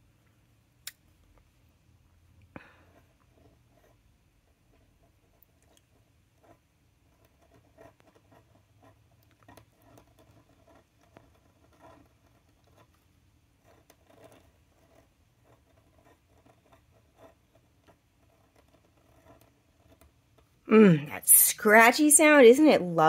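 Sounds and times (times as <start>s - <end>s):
pen nib scratching on paper: 2.6s - 20.6s.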